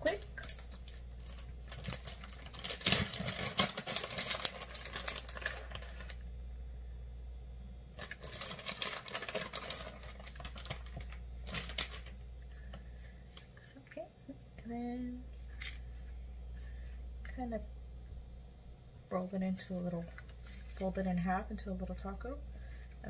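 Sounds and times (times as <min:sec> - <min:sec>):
plastic bag crinkling: 0:00.0 - 0:06.2, 0:08.0 - 0:12.2
low steady hum: 0:00.0 - 0:23.0.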